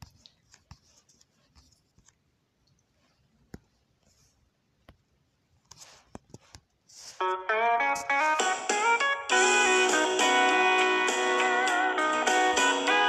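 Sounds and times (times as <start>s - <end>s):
faint clicks and taps: 0.0s - 4.2s, 4.8s - 6.8s.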